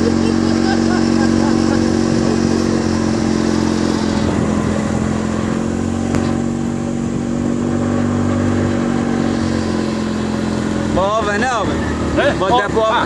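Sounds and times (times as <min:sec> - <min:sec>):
utility vehicle engine running: 0:00.0 - 0:13.0.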